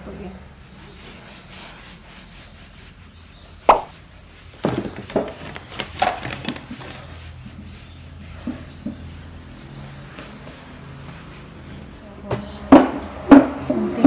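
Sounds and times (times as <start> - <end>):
cloth rubbing on tabletop: 0.6 - 4.5.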